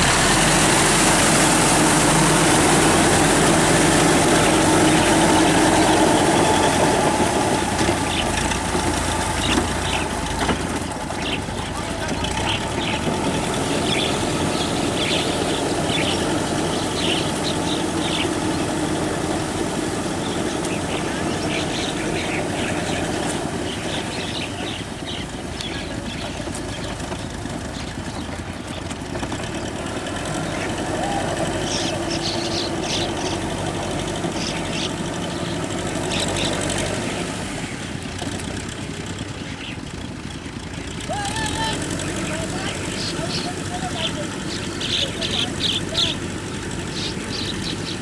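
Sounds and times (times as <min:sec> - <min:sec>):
rotary tiller churning mud: 0:00.0 - 0:48.0
tractor diesel engine under load: 0:00.0 - 0:48.0.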